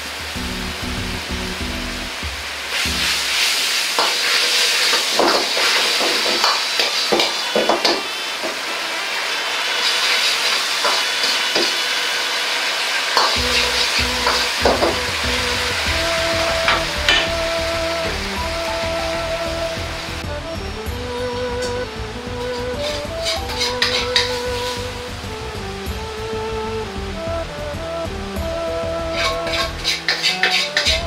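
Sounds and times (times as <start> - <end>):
background music: 0.0 - 3.5, 13.3 - 31.0
sauce sizzling in a wok: 0.0 - 20.3, 22.2 - 25.6, 28.4 - 31.0
metal ladle scraping a wok: 29.2 - 31.0.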